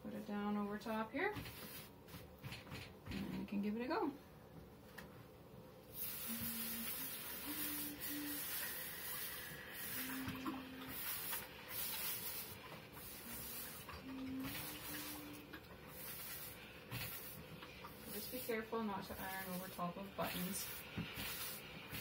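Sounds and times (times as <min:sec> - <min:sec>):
steam iron hissing: 0:05.9 - 0:22.0.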